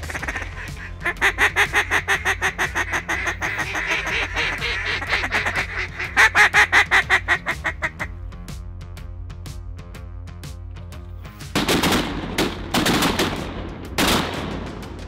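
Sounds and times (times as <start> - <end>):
duck call quacks: 0.0 - 8.1.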